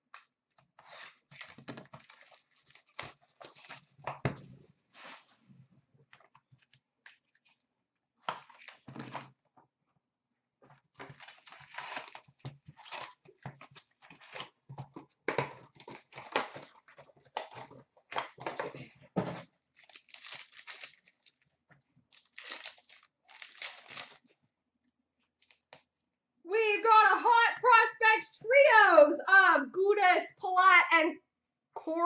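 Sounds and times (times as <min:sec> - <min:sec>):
wrapping crinkling and tearing: 0:00.8 - 0:04.1, 0:11.0 - 0:14.7, 0:19.7 - 0:21.5, 0:22.1 - 0:24.4.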